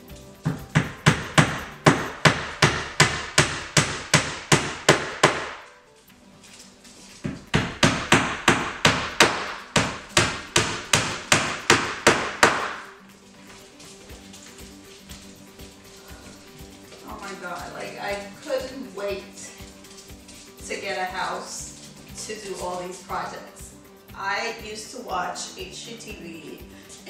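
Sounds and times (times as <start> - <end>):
hammer driving nails into wood: 0.4 - 5.7, 7.2 - 12.9.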